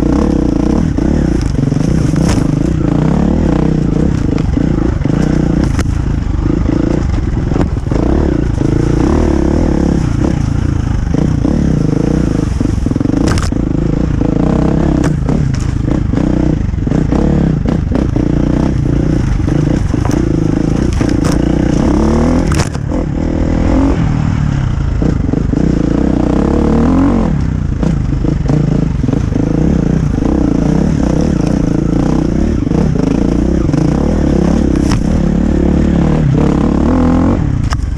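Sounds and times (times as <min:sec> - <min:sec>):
motorcycle engine revving: 0:00.0 - 0:37.9.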